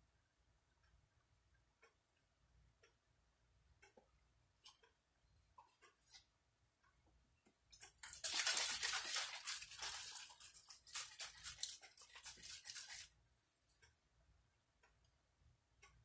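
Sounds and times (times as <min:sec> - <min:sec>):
plastic wrapping crinkling: 0:07.9 - 0:13.1.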